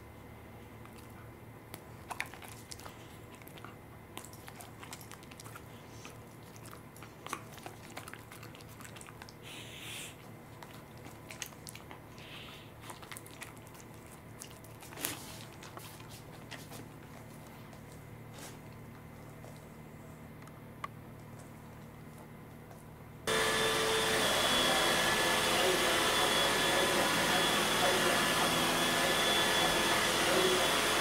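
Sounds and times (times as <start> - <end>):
dog licking and nibbling: 0.8 - 9.6, 10.2 - 19.8.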